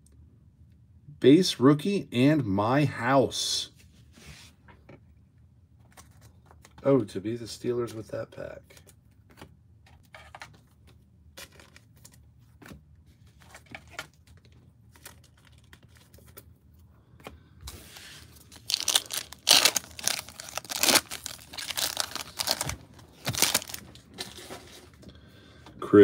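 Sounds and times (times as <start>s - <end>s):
card pack wrapper crinkling: 14.1s - 16.4s, 17.7s - 24.8s.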